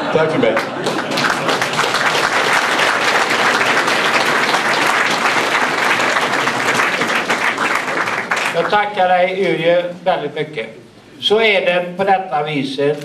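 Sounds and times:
crowd applauding: 0.0s - 9.0s.

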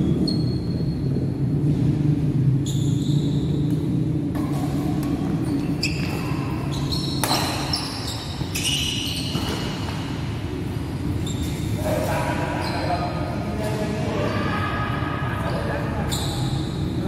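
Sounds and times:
low hum of hall: 0.0s - 17.0s
shoes squeaking on court: 0.1s - 0.9s, 2.6s - 14.4s, 16.0s - 17.0s
racket striking shuttlecock: 4.3s - 5.4s, 7.1s - 8.0s.

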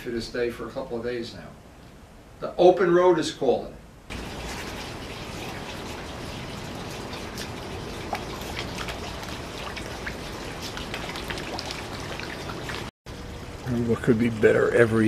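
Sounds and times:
water drips and plops: 4.1s - 13.8s
water trickling into pond: 4.1s - 15.0s.

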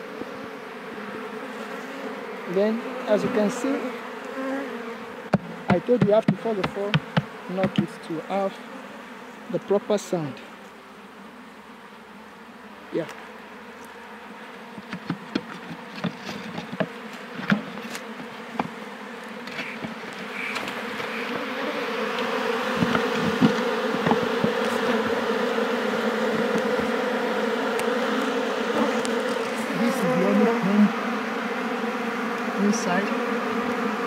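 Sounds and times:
bees buzzing: 0.0s - 34.0s
wooden knocks and clicks: 14.8s - 17.6s, 22.8s - 24.6s.

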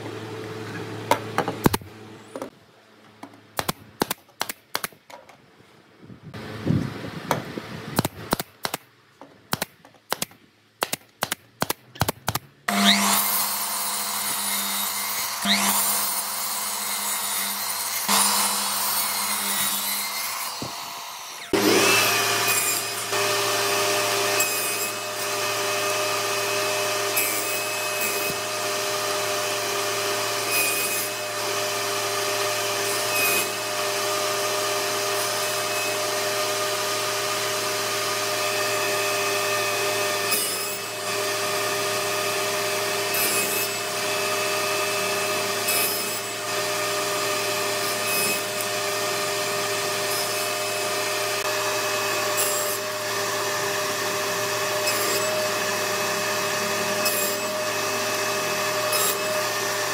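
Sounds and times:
saw blade cutting wood: 9.6s - 59.9s
table saw running: 12.7s - 59.9s.

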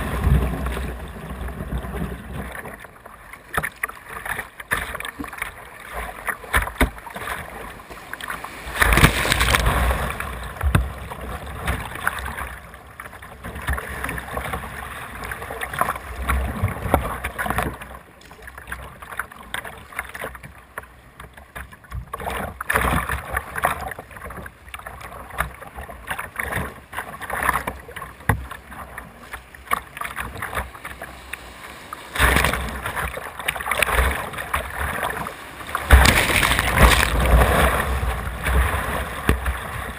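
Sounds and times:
whitewater rushing and splashing: 3.5s - 17.8s, 26.2s - 39.9s.

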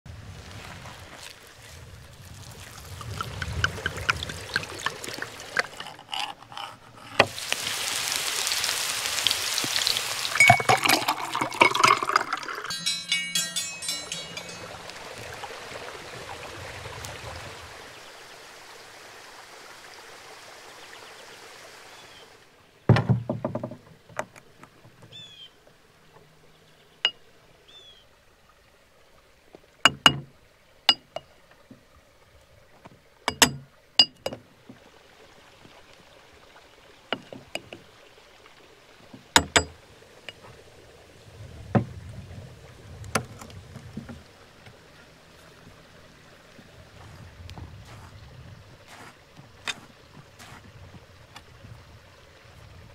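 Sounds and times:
cookware clinks and knocks: 10.4s - 14.9s, 39.4s - 39.8s.

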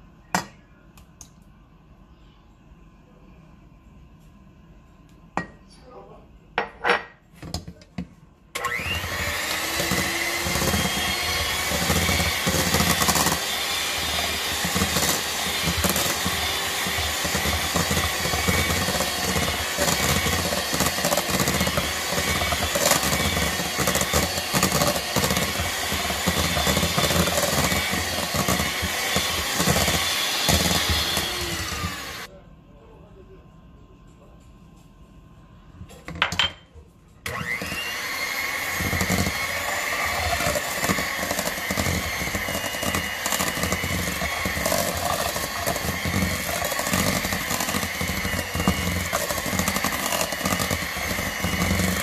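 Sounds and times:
electric hand mixer running: 8.6s - 32.3s, 37.3s - 52.0s.

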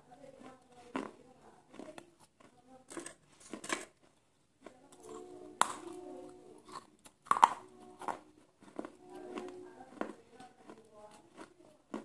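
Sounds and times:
person chewing crunchy fried food: 0.3s - 12.0s.

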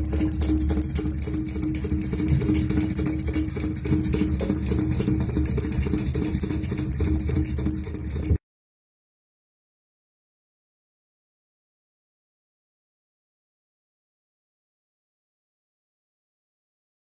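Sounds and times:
air compressor running: 0.0s - 8.4s.

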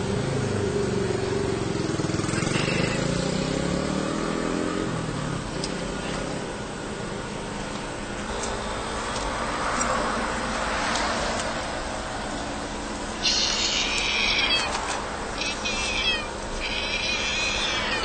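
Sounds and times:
road traffic noise: 0.0s - 18.0s
car passing: 8.6s - 16.3s.

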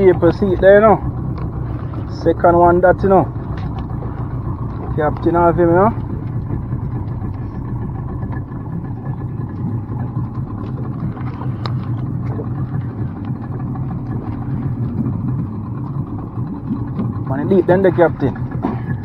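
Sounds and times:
outboard motor droning: 0.0s - 19.0s.

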